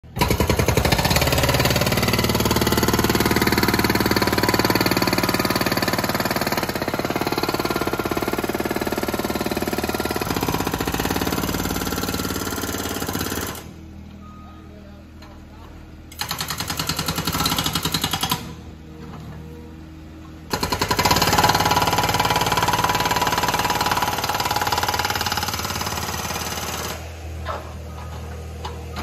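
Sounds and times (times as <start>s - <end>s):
hydraulic breaker hammering concrete: 0.0s - 13.8s, 16.2s - 18.6s, 20.5s - 27.4s.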